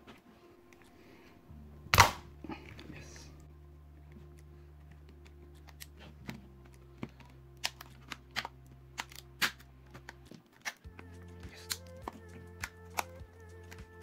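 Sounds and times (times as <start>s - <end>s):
soft background music: 0.0s - 14.0s
plastic casing clicks and snaps: 5.6s - 13.9s.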